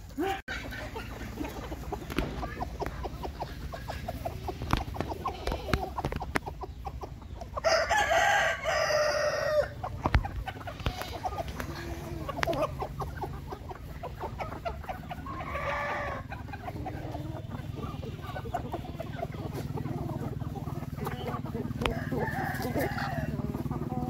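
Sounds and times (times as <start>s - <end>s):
chickens clucking: 0.0s - 24.0s
rooster crowing: 7.6s - 9.8s, 15.2s - 16.3s, 21.7s - 23.7s.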